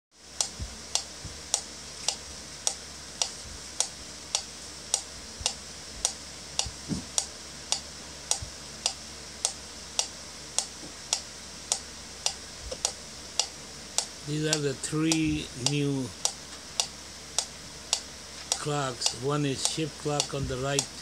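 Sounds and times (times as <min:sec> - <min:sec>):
metronome ticking: 0:00.4 - 0:21.0.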